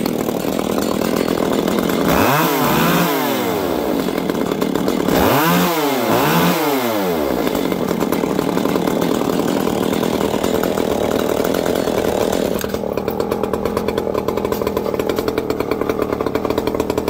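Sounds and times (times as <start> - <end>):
chainsaw engines running: 0.0 - 17.0.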